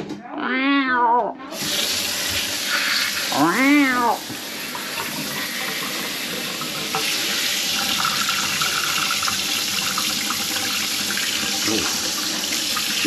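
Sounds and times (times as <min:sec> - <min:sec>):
faucet running water into sink: 0:01.5 - 0:13.0.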